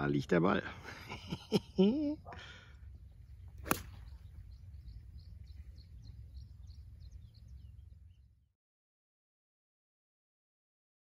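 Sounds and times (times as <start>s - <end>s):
small bird chirping: 2.2s - 8.5s
low steady rumble: 2.6s - 8.5s
golf club striking ball: 3.5s - 4.3s.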